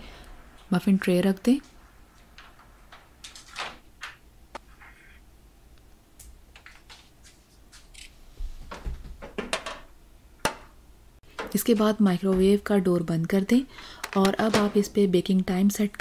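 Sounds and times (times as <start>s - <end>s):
baking tray clicking and knocking: 8.7s - 10.7s.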